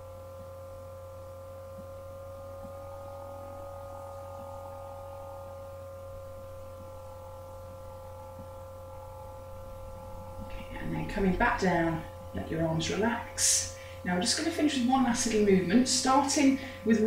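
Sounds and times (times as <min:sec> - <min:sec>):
drone of held tones: 0:00.0 - 0:17.0
low hum: 0:00.0 - 0:17.0.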